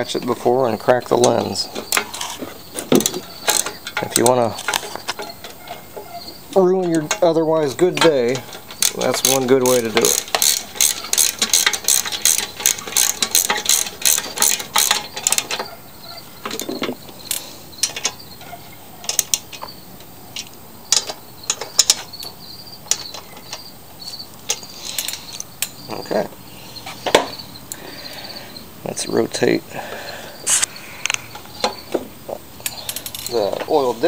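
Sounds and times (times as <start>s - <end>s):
tools being handled: 1.0s - 26.1s, 32.6s - 34.0s
socket wrench ratchet clicking: 8.8s - 15.5s.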